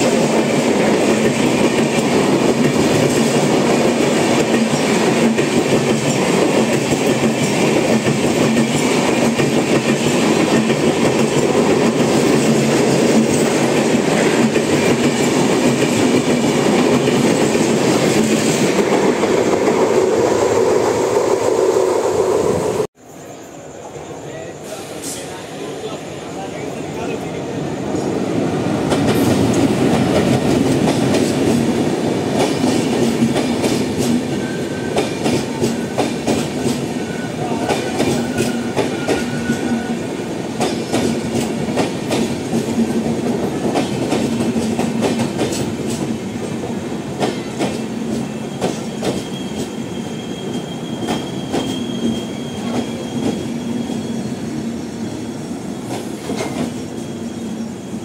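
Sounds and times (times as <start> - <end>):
train rumbling past: 0.0 - 58.0
high wheel squeal: 36.9 - 40.0, 48.4 - 55.9, 56.7 - 58.0.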